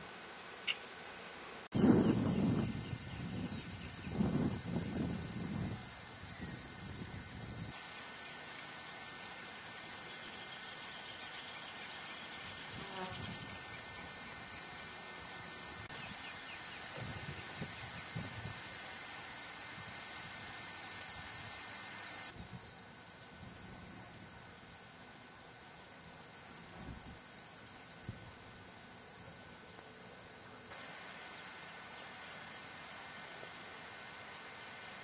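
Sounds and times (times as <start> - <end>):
insects droning: 0.0 - 35.0.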